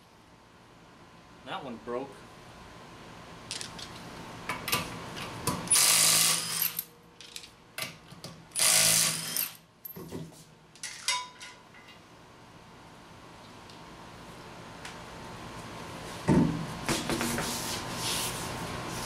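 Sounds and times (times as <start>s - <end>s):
impact wrench spinning lug nuts: 5.7s - 6.9s, 8.6s - 9.6s.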